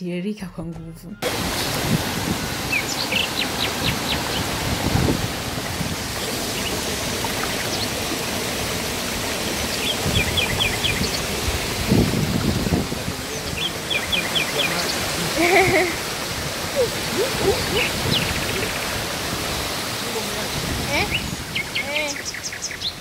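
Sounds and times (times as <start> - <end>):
water flowing strongly: 1.2 - 23.0
bird chirping: 2.6 - 4.6, 6.2 - 8.2, 9.4 - 11.5, 13.2 - 15.2, 16.8 - 19.0, 21.0 - 23.0.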